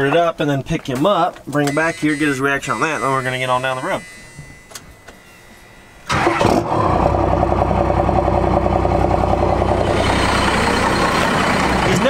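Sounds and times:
diesel engine starting and idling: 6.1 - 12.0.

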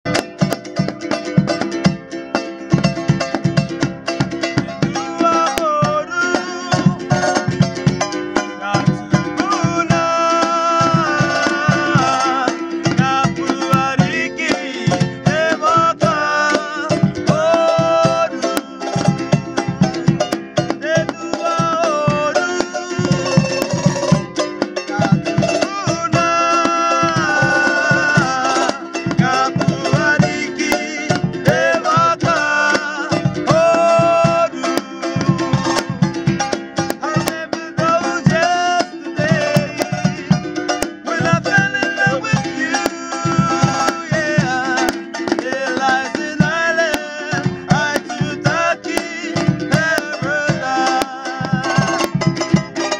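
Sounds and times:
hand drum beat: 0.0 - 52.9
strummed ukuleles: 0.0 - 52.9
men singing in harmony: 4.8 - 7.8, 8.6 - 24.2, 24.8 - 36.2, 36.8 - 52.5.

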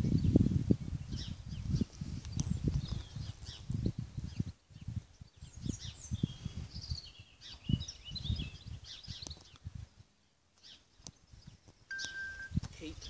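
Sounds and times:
wind buffeting microphone: 0.0 - 10.2
small birds singing: 0.0 - 13.0.

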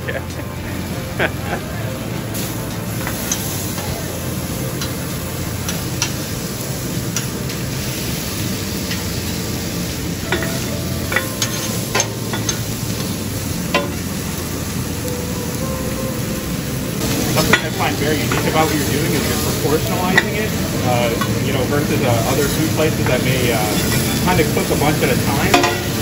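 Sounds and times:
meat sizzling on griddle: 0.0 - 26.0
metal spatulas scraping griddle: 10.2 - 13.2.

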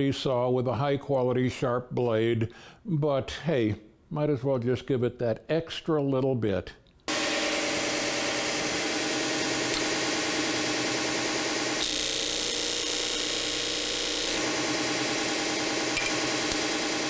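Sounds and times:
disc sander motor running: 7.1 - 17.0.

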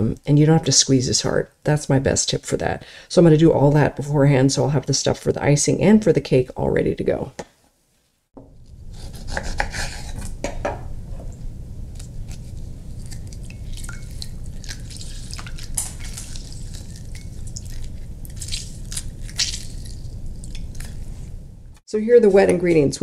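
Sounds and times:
low steady hum: 8.4 - 23.0
knife cutting on wooden board: 8.9 - 10.4
juice dripping: 11.9 - 21.1.

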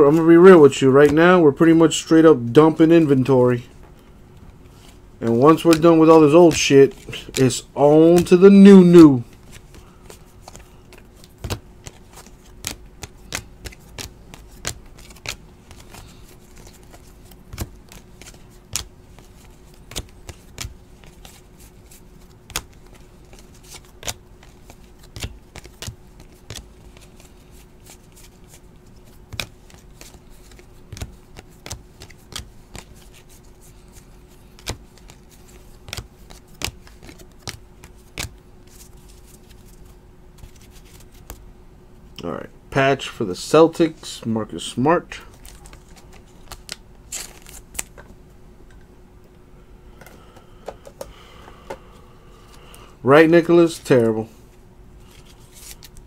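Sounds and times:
faint steady hum: 0.0 - 56.0
cards clicking and snapping: 5.5 - 8.4, 9.2 - 39.8, 40.4 - 41.4, 45.3 - 48.0, 55.1 - 56.0.

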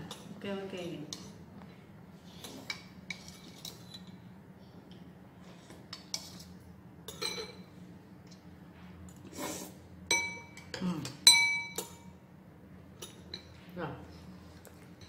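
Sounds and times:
spoons clinking on bowl and glass: 7.1 - 7.6.

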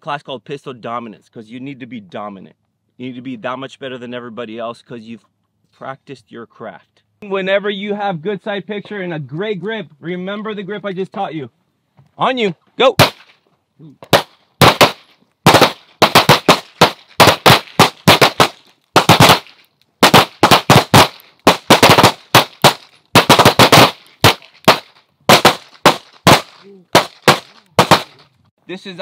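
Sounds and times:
pistol shots: 13.0 - 13.4, 14.1 - 28.2.

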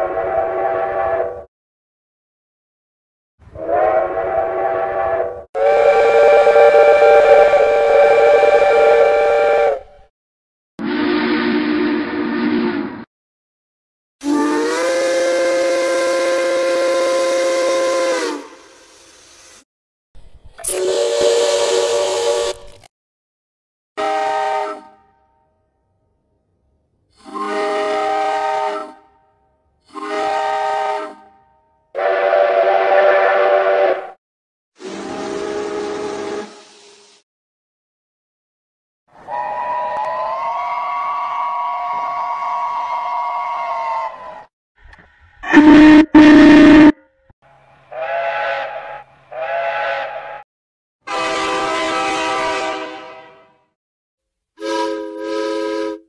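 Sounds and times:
steam locomotive whistle blowing: 0.0 - 1.5, 3.6 - 10.1, 10.8 - 13.0, 14.2 - 19.4, 20.7 - 22.7, 24.0 - 25.1, 27.2 - 29.1, 29.9 - 31.4, 32.0 - 34.2, 34.8 - 36.9, 39.2 - 44.5, 45.4 - 47.0, 47.9 - 50.4, 51.1 - 53.5, 54.6 - 56.0.

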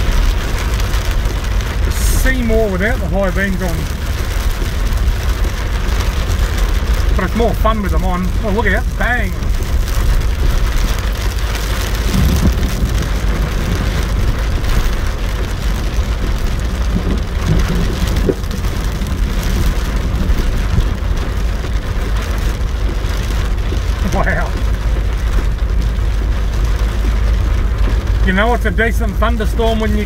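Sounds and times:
car engine running: 0.0 - 30.0
torrential rain on car roof: 0.0 - 30.0
windscreen wipers: 0.0 - 30.0
deep rumble of thunder: 8.3 - 28.2.

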